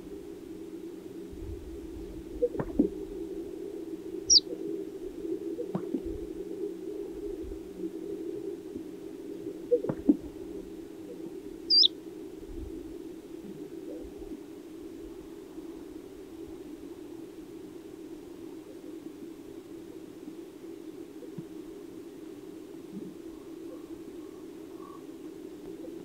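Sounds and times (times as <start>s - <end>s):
high falling chirp: 11.7s - 11.9s.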